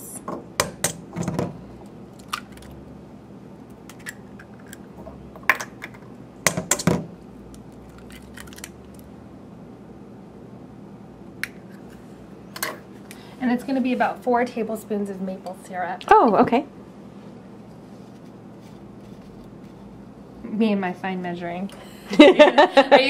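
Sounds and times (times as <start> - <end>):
eggs cracking on metal bowl: 2.1 - 2.8, 3.8 - 9.0.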